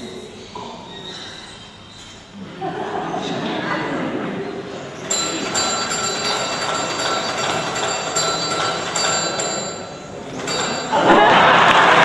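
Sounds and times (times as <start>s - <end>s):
small brass bell ringing: 5.0s - 11.1s.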